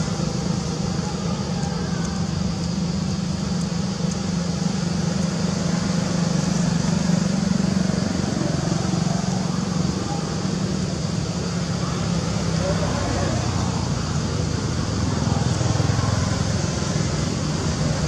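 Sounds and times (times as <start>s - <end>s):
constant hiss: 0.0s - 18.0s
low engine hum: 0.0s - 18.0s.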